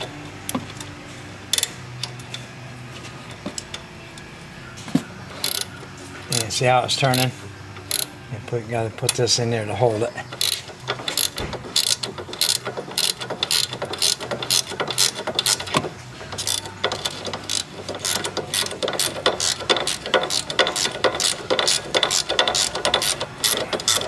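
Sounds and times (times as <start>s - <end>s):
ratcheting wrench clicking: 1.5s - 2.4s, 5.4s - 5.7s, 6.3s - 8.1s, 10.3s - 24.0s.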